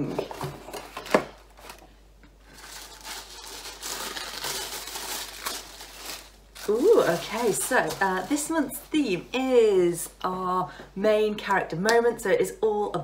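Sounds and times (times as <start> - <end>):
paper rustling and crinkling: 0.0 - 8.7.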